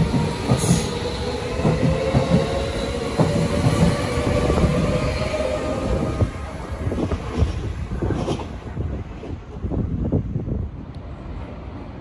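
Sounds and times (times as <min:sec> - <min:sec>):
train wheels clicking over rail joints: 0:00.0 - 0:04.9
train rumble: 0:00.0 - 0:12.0.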